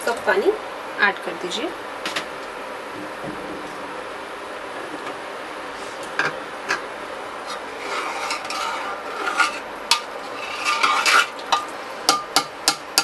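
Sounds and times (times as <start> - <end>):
metal ladle scraping a pot: 7.4 - 11.7.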